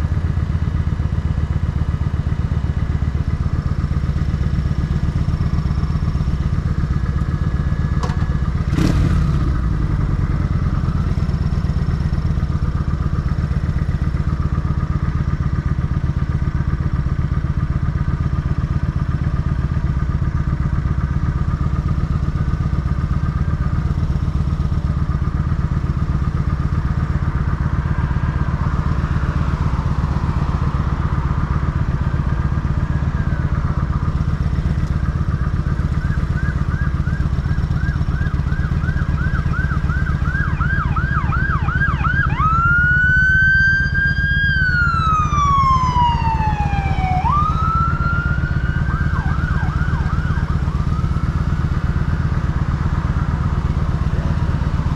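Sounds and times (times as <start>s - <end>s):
motorcycle engine idling: 0.0s - 54.9s
emergency siren wailing and yelping: 35.1s - 53.0s.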